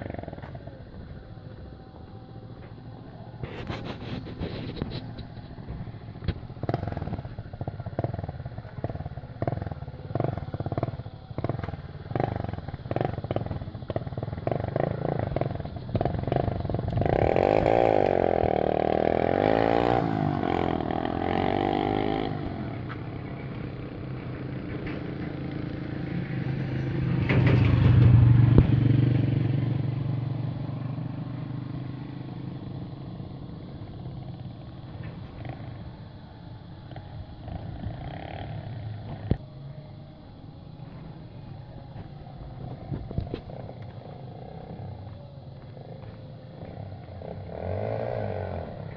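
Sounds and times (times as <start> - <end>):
motorcycle engine running: 0.0 - 48.9.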